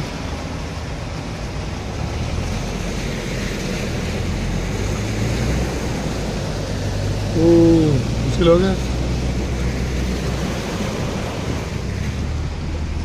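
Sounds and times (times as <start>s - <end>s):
car engine hum: 0.0s - 13.0s
water churned by tyres: 0.0s - 13.0s.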